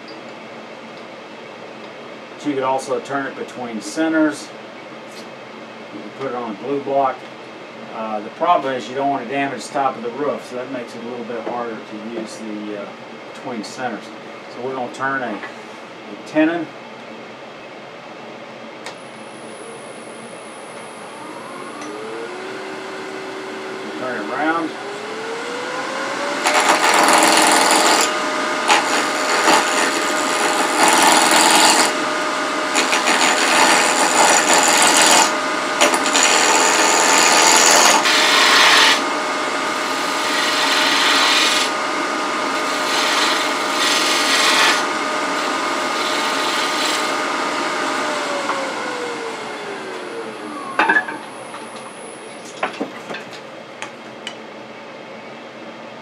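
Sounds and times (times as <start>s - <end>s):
lathe motor whining: 18.9s - 52.4s
turning tool scraping wood: 26.1s - 32.0s, 32.7s - 39.1s, 39.7s - 41.8s, 42.4s - 48.6s.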